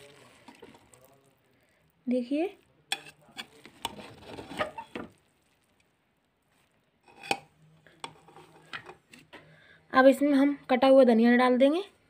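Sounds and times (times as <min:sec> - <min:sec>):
ladle stirring rice in a pot: 0:00.0 - 0:09.3.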